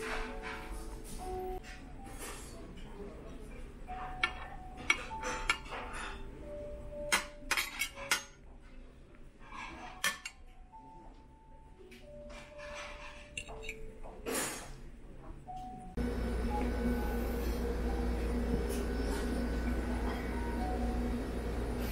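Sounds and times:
cutlery clinking on ceramic plate: 3.9 - 6.3, 7.0 - 8.4, 12.3 - 14.8.

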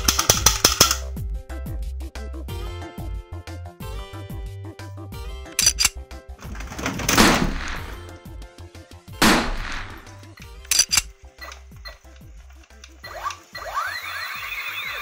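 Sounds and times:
sharp clicks: 0.0 - 1.1, 5.6 - 8.2, 9.2 - 13.6
background music: 0.0 - 15.0
loud gunshot-like bangs: 6.8 - 8.2, 9.2 - 10.3.

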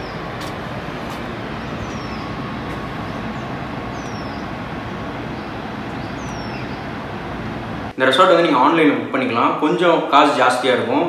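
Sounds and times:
rushing outdoor noise: 0.0 - 8.7
bird whistling: 1.5 - 7.0.

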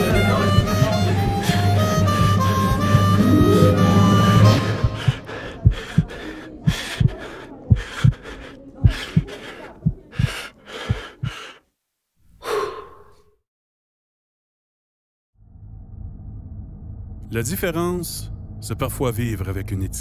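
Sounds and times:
fast heartbeat thumps: 0.0 - 11.6
heavy breathing: 0.0 - 11.7, 12.3 - 13.3.

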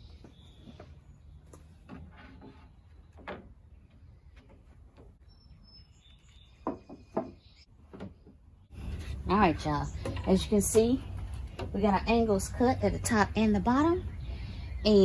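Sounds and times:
wooden boards knocking: 6.6 - 8.4.

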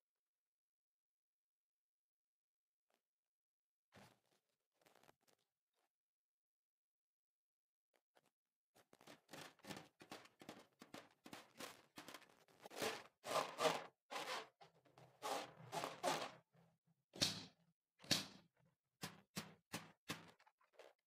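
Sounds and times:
hands squeezing slime balloon: 9.0 - 16.4.

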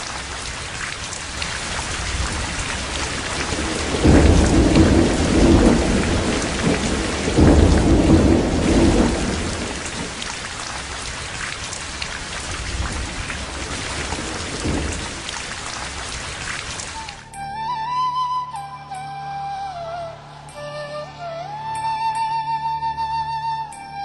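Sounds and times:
heavy rain: 0.0 - 17.4
raindrop ticks: 0.0 - 17.4
thunder rolling: 1.3 - 17.2.

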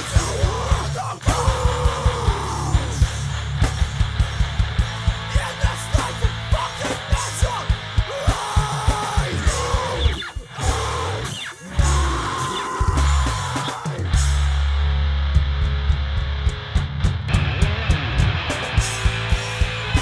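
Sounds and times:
bass guitar: 0.0 - 20.0
distorted electric guitar: 0.0 - 20.0
kick drum pattern: 15.2 - 18.1.

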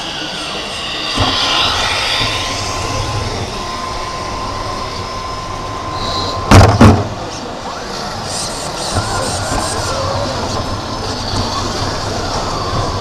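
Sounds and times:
model truck motor whine: 0.0 - 13.0
loud bump: 0.8 - 4.6, 6.5 - 7.2.

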